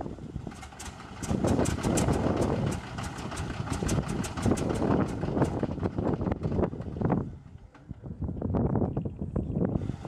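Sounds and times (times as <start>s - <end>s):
radial engine cranking by starter: 0.4s - 7.9s.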